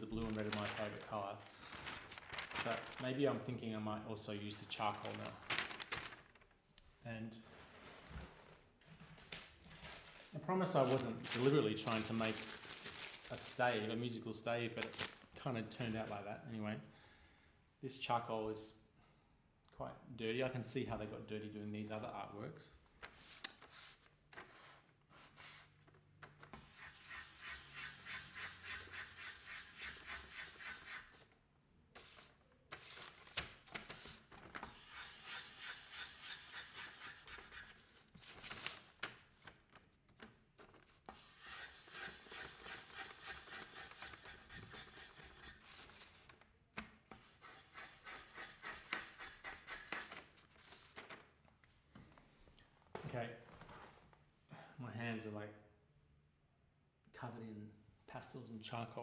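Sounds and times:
charcoal scribbling on paper: 0:26.6 - 0:31.2, 0:34.7 - 0:37.8, 0:41.1 - 0:45.9, 0:47.2 - 0:50.7.

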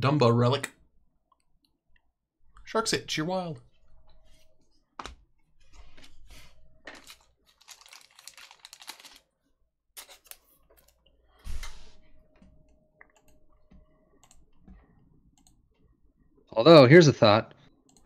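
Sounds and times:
card wrappers rustling: 0:06.8 - 0:09.4.

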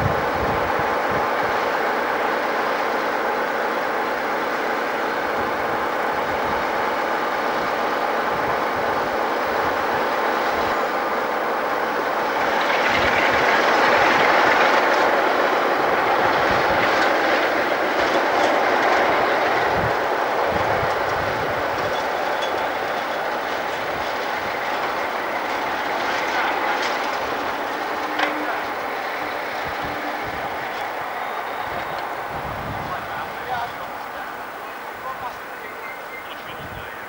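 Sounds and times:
diesel locomotive engine running: 0:00.0 - 0:37.0
wheels knocking over rail joints: 0:12.0 - 0:34.6.

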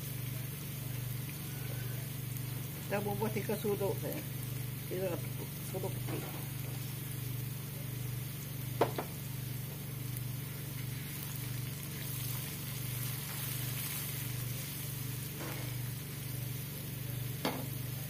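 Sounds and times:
food sizzling in hot oil: 0:00.0 - 0:18.0
steady low hum: 0:00.0 - 0:18.0
wooden spatula stirring in wok: 0:10.7 - 0:16.6.

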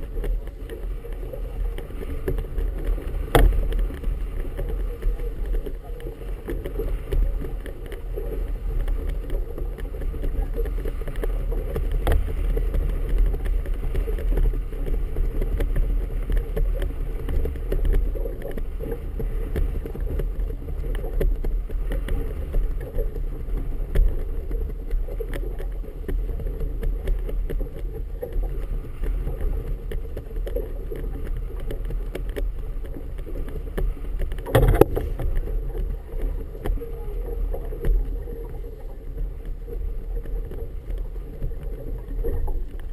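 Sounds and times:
water sloshing against boat hull: 0:00.0 - 0:42.9
wind rumble on microphone: 0:00.0 - 0:42.9
sharp knock on boat: 0:03.2 - 0:03.8, 0:34.4 - 0:35.4.

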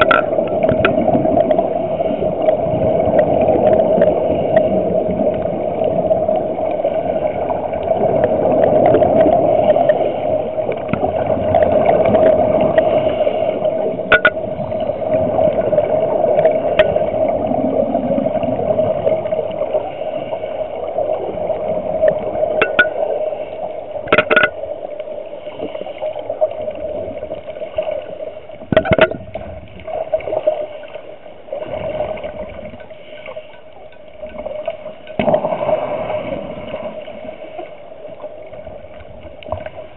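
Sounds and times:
underwater watery rush: 0:00.0 - 0:39.9
constant hum: 0:21.6 - 0:25.6.

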